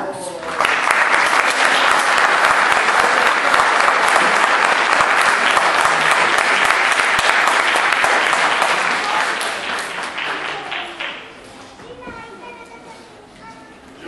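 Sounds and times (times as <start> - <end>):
large crowd applauding: 0.4 - 11.4.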